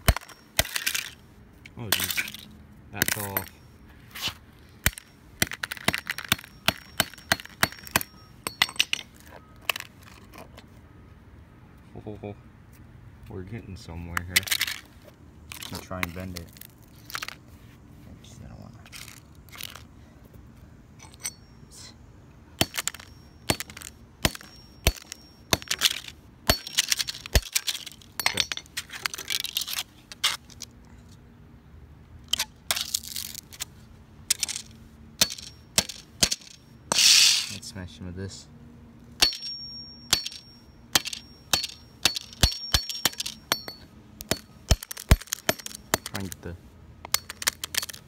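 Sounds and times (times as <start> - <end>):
hammer striking phone on concrete: 4.8 - 9.1, 22.6 - 25.9, 26.5 - 27.5, 35.2 - 37.1, 39.2 - 46.4
glass cracking and clinking: 41.0 - 46.3.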